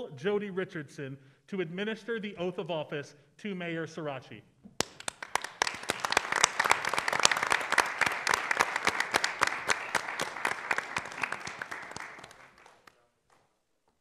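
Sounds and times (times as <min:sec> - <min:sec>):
audience applauding: 0:04.8 - 0:13.4.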